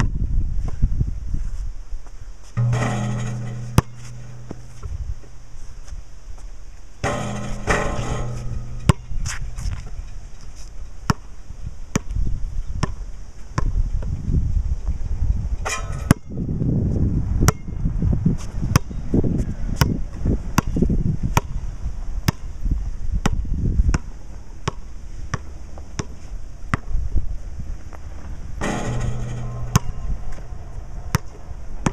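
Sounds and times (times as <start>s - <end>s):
wind on microphone: 0.0s - 24.3s, 26.3s - 31.9s
basketball bouncing on concrete: 2.6s - 5.4s, 7.0s - 10.0s, 11.1s - 11.3s, 11.9s - 12.2s, 23.2s - 26.9s, 28.6s - 31.9s.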